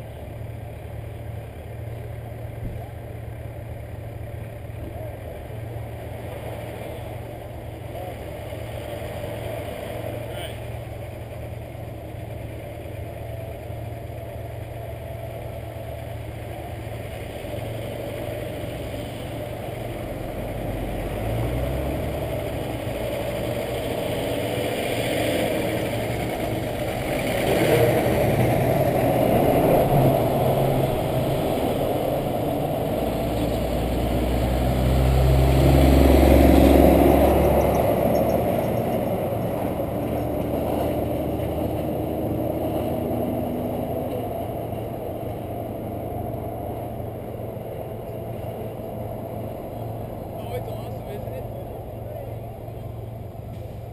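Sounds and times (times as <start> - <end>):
car engine rumble: 0.0 - 53.9
heavy truck passing close: 0.0 - 53.9
vehicles passing: 0.0 - 53.9.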